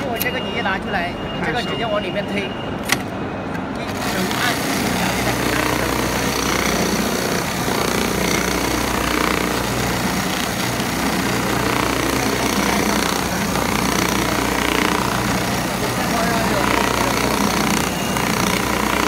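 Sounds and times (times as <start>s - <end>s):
sewing machine running: 3.9s - 19.0s.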